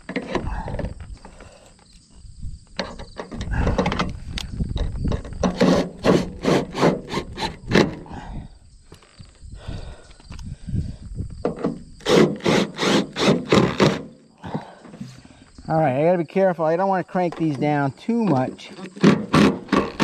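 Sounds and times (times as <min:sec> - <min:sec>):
metal scraping on metal roof: 0:05.1 - 0:08.0.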